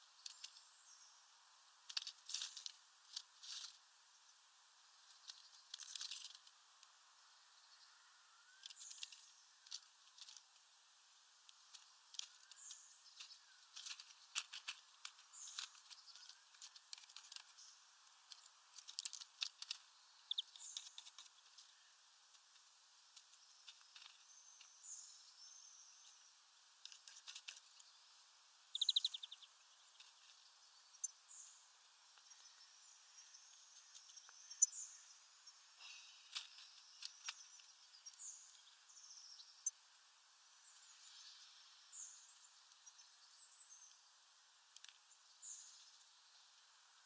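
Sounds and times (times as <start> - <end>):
birds chirping: 0.0 - 10.6, 11.5 - 22.6, 23.2 - 39.9, 40.5 - 44.2
beaks cracking seeds: 1.9 - 3.8, 5.1 - 6.6, 8.6 - 10.6, 11.4 - 21.8, 26.8 - 27.9, 35.8 - 38.6
buzzy bird trill: 18.4 - 21.9, 28.6 - 31.6, 32.3 - 39.8.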